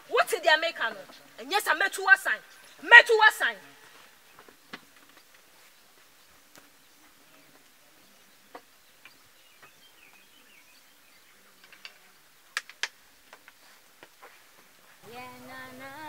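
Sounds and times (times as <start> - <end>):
faint bird chirps: 3.6 - 12.7
sharp taps and knocks: 11.6 - 14.2.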